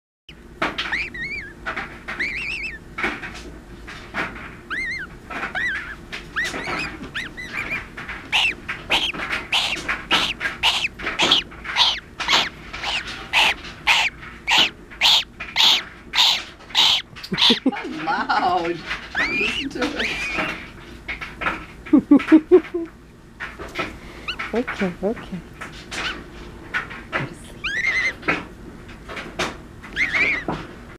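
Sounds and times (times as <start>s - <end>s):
gosling peeping: 0.3s - 3.4s, 4.6s - 20.9s, 24.1s - 25.0s, 25.8s - 26.3s, 27.4s - 28.4s, 29.8s - 30.6s.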